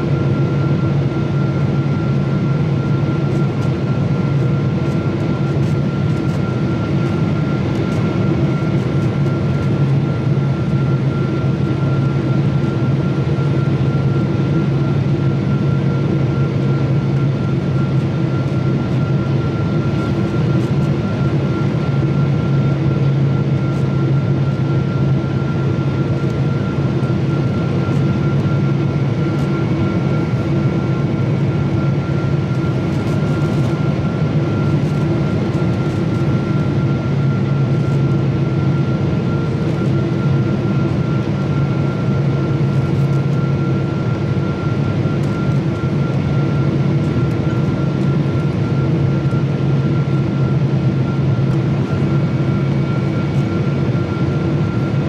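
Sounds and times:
jet engine drone: 0.0 - 55.0
thin steady whine: 0.0 - 55.0.

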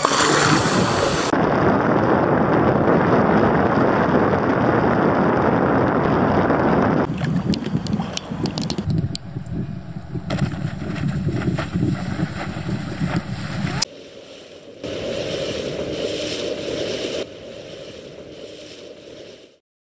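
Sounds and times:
water rushing: 0.0 - 1.3, 7.1 - 19.6
wind buffeting microphone: 0.0 - 13.9.

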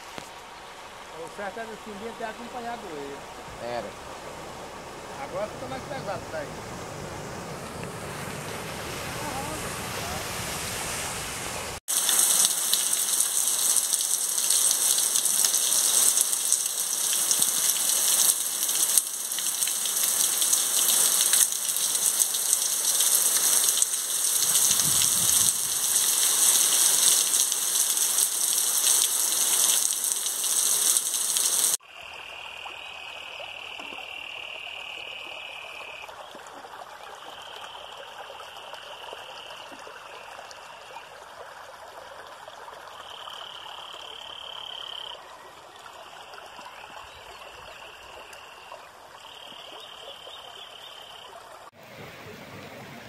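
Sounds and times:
running water: 0.0 - 31.8
heavy rain falling: 7.9 - 31.8.

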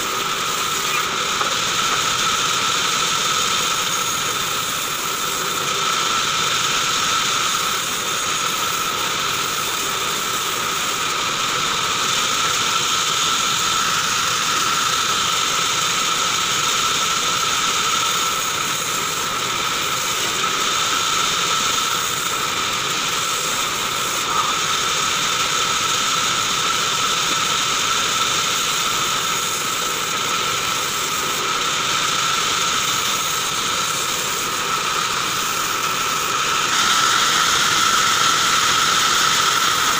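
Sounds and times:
bandsaw whining: 0.0 - 39.9.

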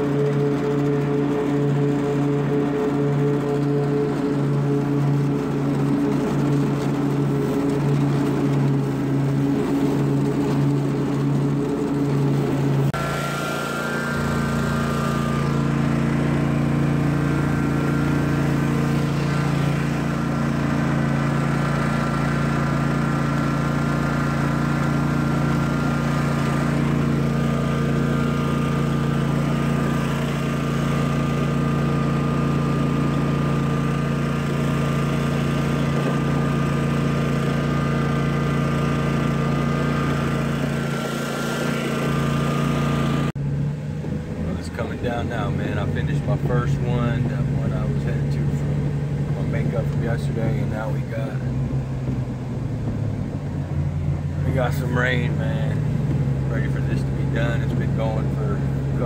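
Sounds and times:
lawn mower engine running: 0.0 - 59.0.

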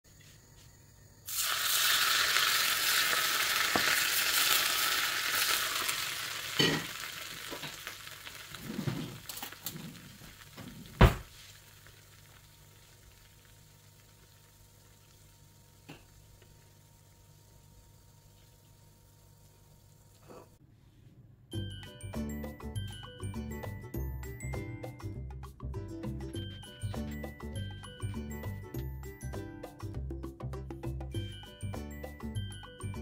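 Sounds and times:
hot fat sizzling: 1.3 - 20.3.

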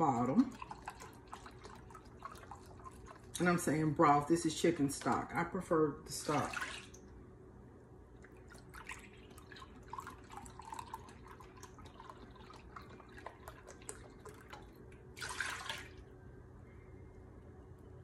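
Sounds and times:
liquid pouring into glass cup: 0.2 - 3.4, 8.2 - 16.1.

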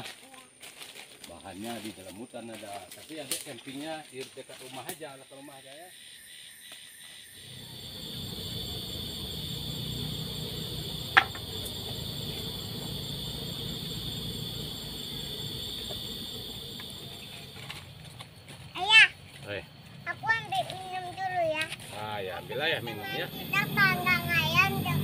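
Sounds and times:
insects buzzing: 0.0 - 25.0
low rumble: 7.4 - 18.1.

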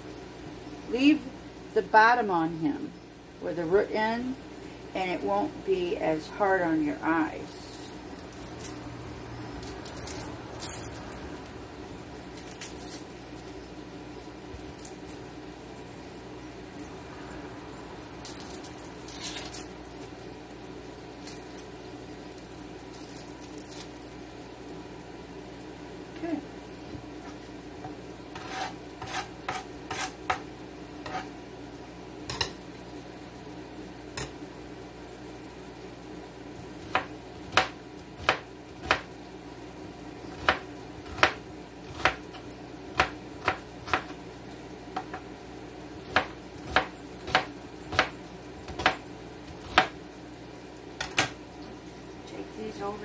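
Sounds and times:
knife chopping on cutting board: 28.3 - 30.4, 31.0 - 31.3, 36.9 - 39.1, 40.3 - 44.1, 46.1 - 48.1, 48.7 - 49.0, 49.6 - 49.9.

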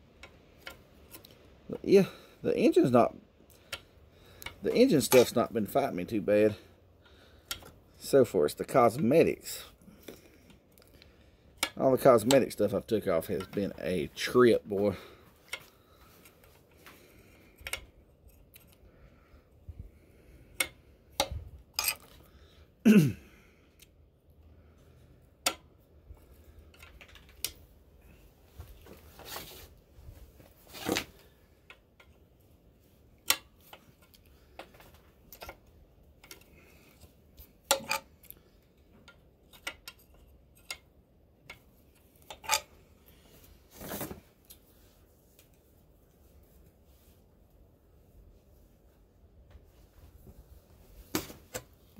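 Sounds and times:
wrench clinking on metal: 21.8 - 22.1, 37.7 - 38.1.

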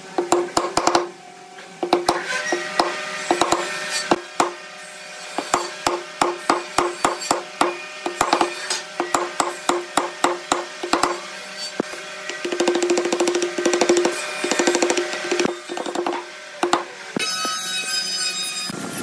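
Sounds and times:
mallet striking chisel into wood: 0.2 - 1.1, 1.8 - 3.7, 4.4 - 4.6, 5.4 - 11.2, 11.8 - 16.9.

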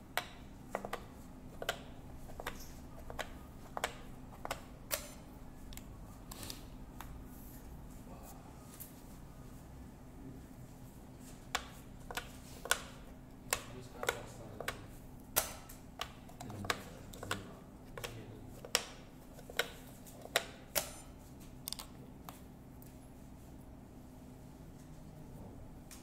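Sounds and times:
game discs clicking on plastic board: 0.8 - 5.1, 15.4 - 21.0.

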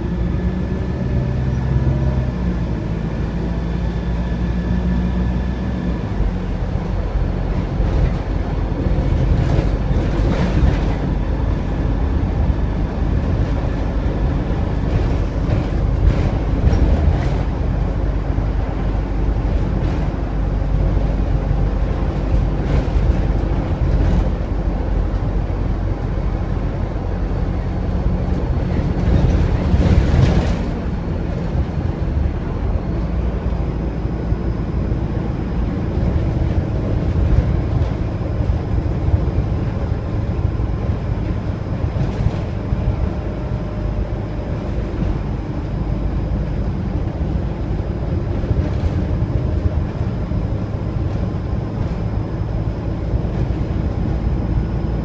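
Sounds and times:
bus diesel engine: 0.0 - 55.0
rattles inside bus: 0.0 - 55.0
road rumble: 0.0 - 55.0.

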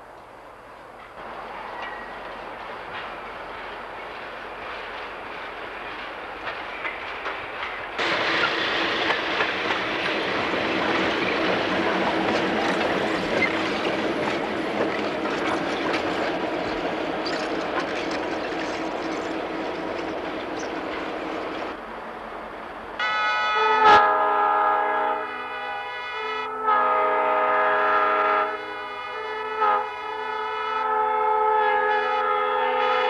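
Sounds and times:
diesel locomotive engine humming: 0.0 - 33.0
wheels clicking over rail joints: 1.0 - 21.8
wheel squeals: 13.1 - 14.0
train horn: 23.0 - 33.0.

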